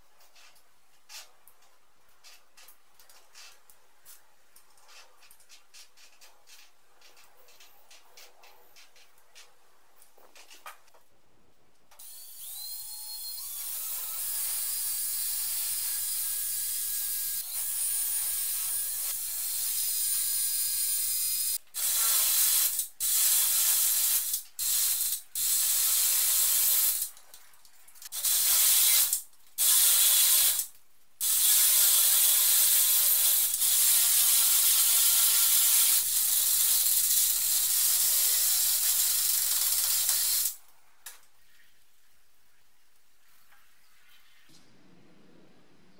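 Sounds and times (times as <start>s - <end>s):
cordless drill boring into wall: 12.0s - 27.1s, 28.2s - 40.6s.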